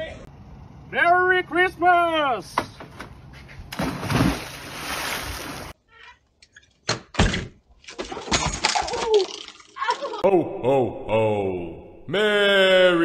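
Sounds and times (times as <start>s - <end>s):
splash of person diving: 3.7s - 5.8s.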